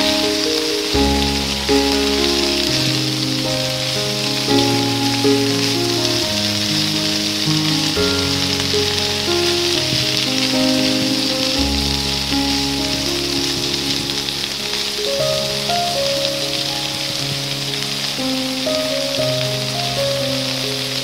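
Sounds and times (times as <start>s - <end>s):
slow background music: 0.0s - 21.0s.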